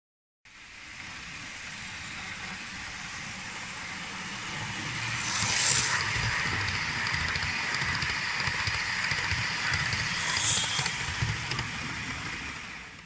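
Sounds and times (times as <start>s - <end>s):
model train rumbling past: 0.5s - 13.0s.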